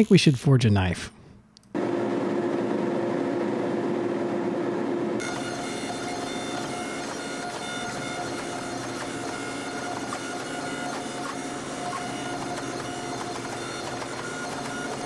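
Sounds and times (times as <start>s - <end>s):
hydraulic press droning: 5.2s - 15.0s.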